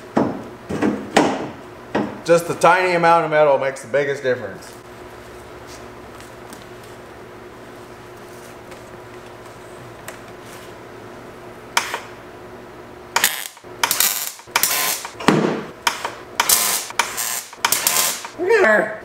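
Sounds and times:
welder arc crackling: 13.2 - 15.2, 16.4 - 18.4
welder click: 13.2 - 15.2, 15.8 - 18.4.

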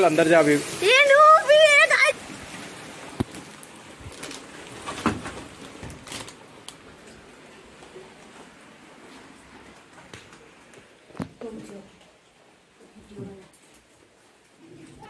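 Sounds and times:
heavy rain hissing: 0.0 - 5.2.

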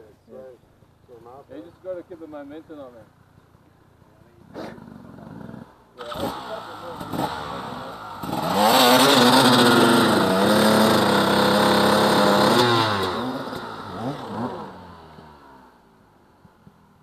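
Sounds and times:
dirt bike engine revving: 4.4 - 15.8.

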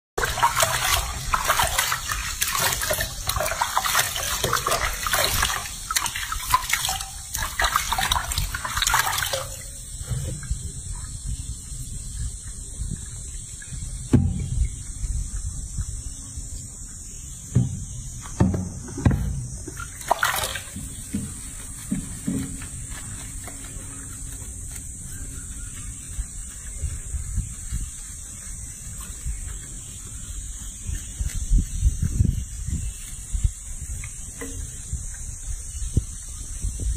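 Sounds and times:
hands scrubbing wet fur: 0.2 - 10.1, 19.7 - 36.7
water splashing in sink: 0.2 - 10.6, 19.0 - 23.6.

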